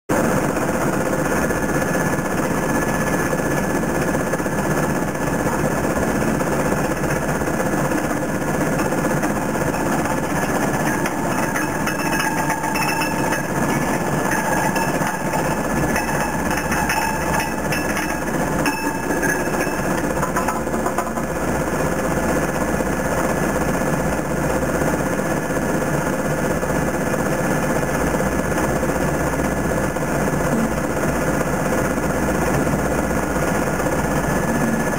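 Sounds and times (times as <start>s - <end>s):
screening machine clatter: 2.4s - 22.7s
small clicks and rattles: 8.8s - 21.2s.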